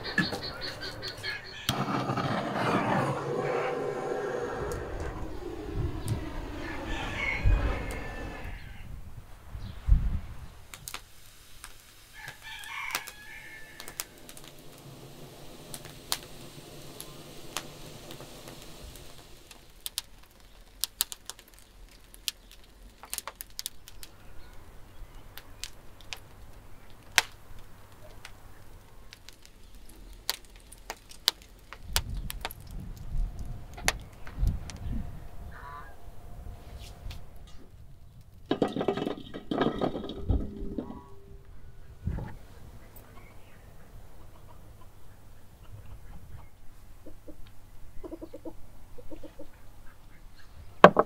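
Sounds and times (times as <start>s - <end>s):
bird calling: 0.0s - 1.8s, 35.5s - 36.1s
wood fire crackling and popping: 0.0s - 7.0s, 10.6s - 35.6s, 37.1s - 40.9s.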